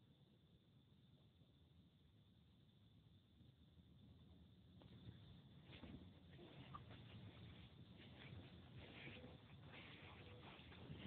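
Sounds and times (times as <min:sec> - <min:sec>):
soft scratchy rustles: 0:04.8 - 0:11.0.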